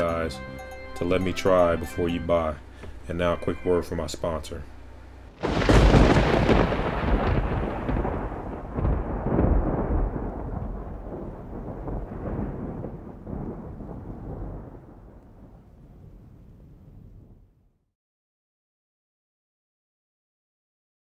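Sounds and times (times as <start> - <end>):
deep rolling rumble: 5.3 - 17.6.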